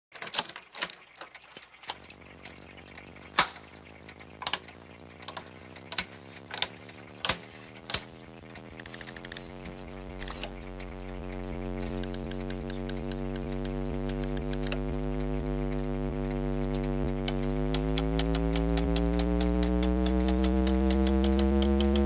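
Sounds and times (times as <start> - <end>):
amplifier electrical hum: 2.1 - 22.0
toggle switches clicking: 8.8 - 9.5, 12.0 - 14.8, 16.7 - 22.0.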